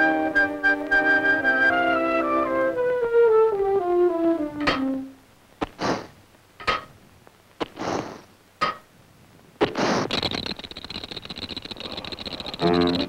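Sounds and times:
hissing puffs of steam: 7.7 - 8.3
false teeth chattering in glass: 9.8 - 13.0
valve clicks and pings: 10.1 - 13.0.

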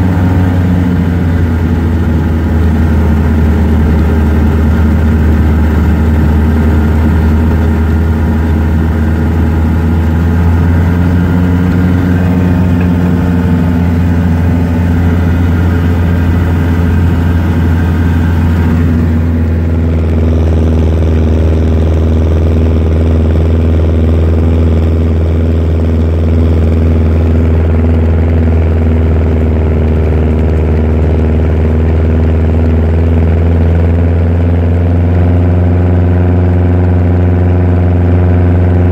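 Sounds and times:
snowcat engine drone: 0.0 - 38.9.

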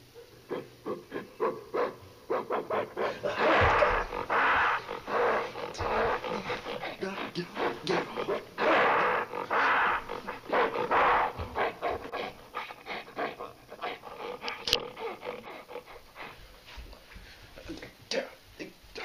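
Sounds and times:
panting breaths: 0.5 - 17.7
person growling like a gorilla: 2.9 - 11.8.

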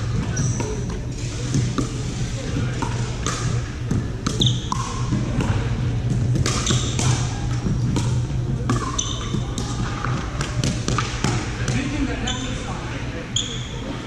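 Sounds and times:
play on other courts: 0.0 - 14.0
steady low hum: 0.0 - 14.0
ball bouncing on court: 0.1 - 11.9
sneakers squeaking on hardwood: 0.2 - 0.9, 3.8 - 5.2, 8.7 - 9.6
paddles hitting a plastic ball: 2.6 - 11.9.

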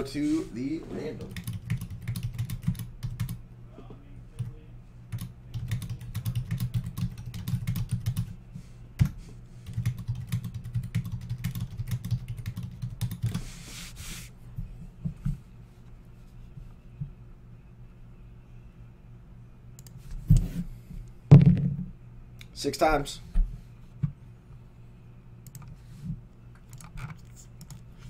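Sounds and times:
keyboard typing: 1.3 - 3.4, 5.1 - 8.3, 9.7 - 13.4.

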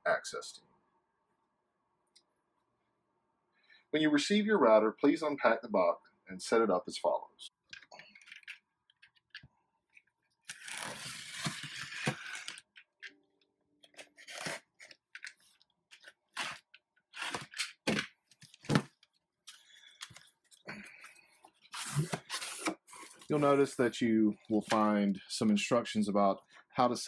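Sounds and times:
box cutter slitting packing tape: 10.5 - 12.6, 14.0 - 15.0, 16.3 - 18.1.

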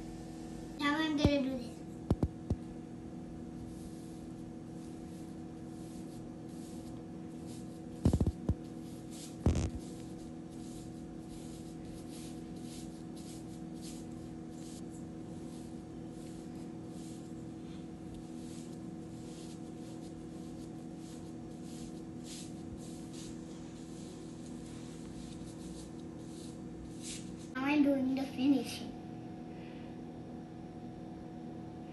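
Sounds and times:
steady low hum: 0.0 - 31.9
paintbrush swishing across paper: 3.6 - 27.6.

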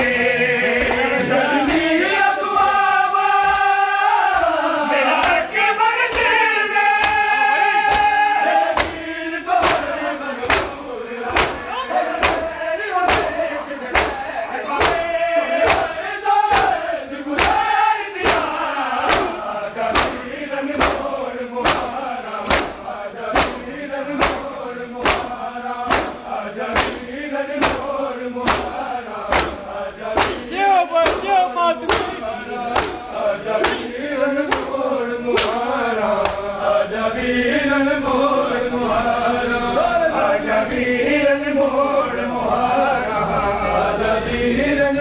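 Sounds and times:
men chanting in chorus: 0.0 - 45.0
hands slapping chests: 5.2 - 5.4, 6.1 - 9.0, 9.6 - 11.6, 12.2 - 12.5, 13.1 - 14.2, 14.8 - 15.9, 16.5 - 16.8, 17.4 - 26.2, 26.8 - 29.6, 30.2 - 33.9, 34.5 - 36.5.

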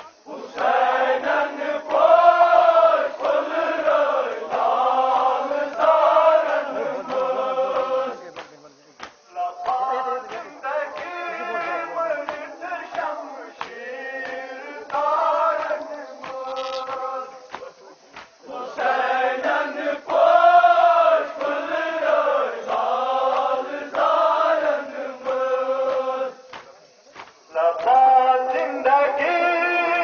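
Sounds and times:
men chanting together: 0.0 - 30.0
sharp chest slaps: 7.8 - 10.4, 15.6 - 18.4, 25.2 - 27.9.

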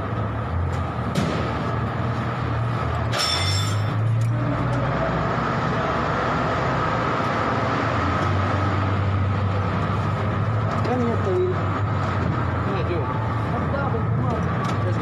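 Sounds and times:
high ringing sound: 3.1 - 4.0.

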